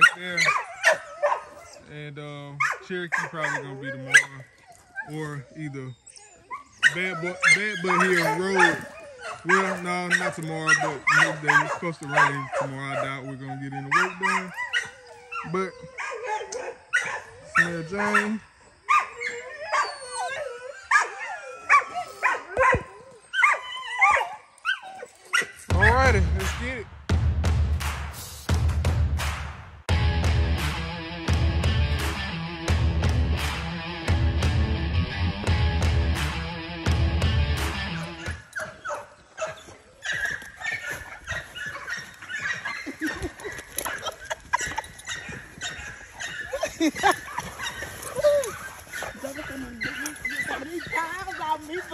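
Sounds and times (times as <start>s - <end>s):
dogs whining and yipping: 0.0s - 2.0s, 2.6s - 25.7s, 38.1s - 51.9s.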